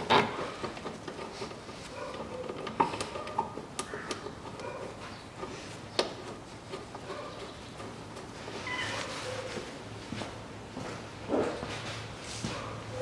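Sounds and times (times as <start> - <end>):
rubbing and handling noise: 0.0 - 10.5.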